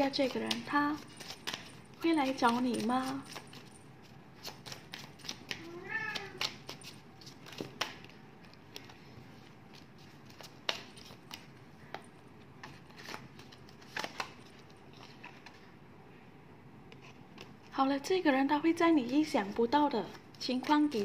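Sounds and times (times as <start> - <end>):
cards clicking on table: 0.0 - 3.6, 4.4 - 9.0, 9.7 - 12.0, 12.6 - 15.1.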